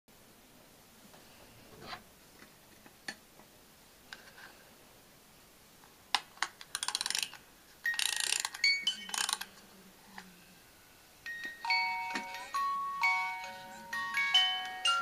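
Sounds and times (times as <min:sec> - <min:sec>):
music box winding clicks: 0:06.6 - 0:09.5
music box tinkling tune: 0:07.8 - 0:09.4, 0:11.2 - 0:15.0.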